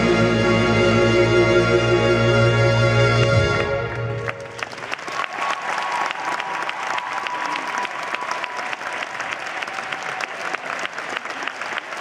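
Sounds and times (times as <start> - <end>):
audience applauding: 3.8 - 12.0.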